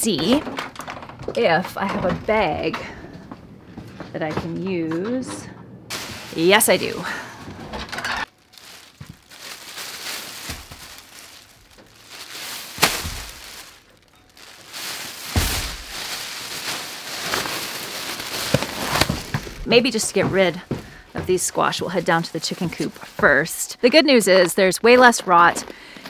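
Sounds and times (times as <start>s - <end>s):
plastic bag crinkling and rustling: 5.9s - 25.7s.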